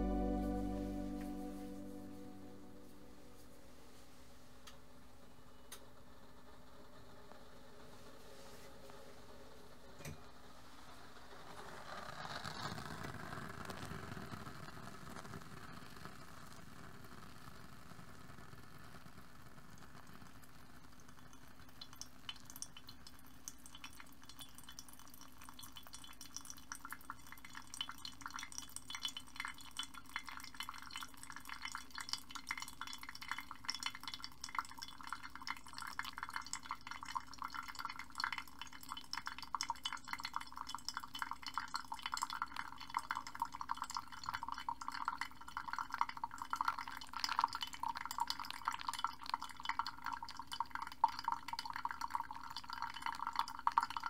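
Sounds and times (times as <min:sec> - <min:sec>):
water pouring onto coffee grounds: 0:11.4 - 0:16.7, 0:19.9 - 0:54.0.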